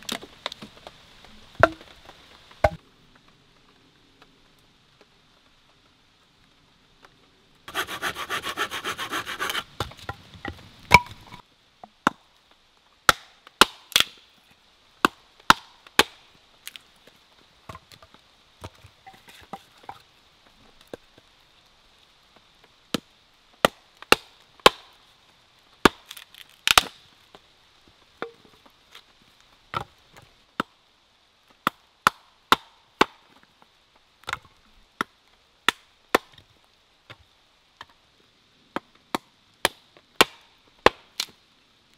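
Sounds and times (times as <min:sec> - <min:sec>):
hatchet splitting wood: 0:07.7 - 0:09.7
rapid rasping: 0:07.7 - 0:09.7.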